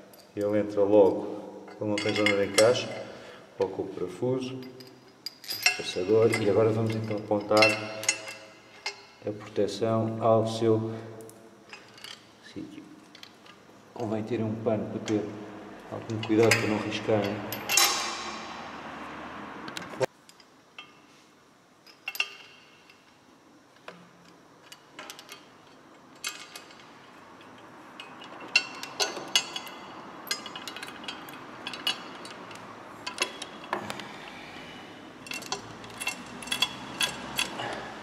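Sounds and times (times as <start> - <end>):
metallic clicks and clinks: 4.6 - 9.2, 11.2 - 12.3, 16.0 - 18.6, 21.8 - 23.1, 23.8 - 34.4, 35.2 - 38.0.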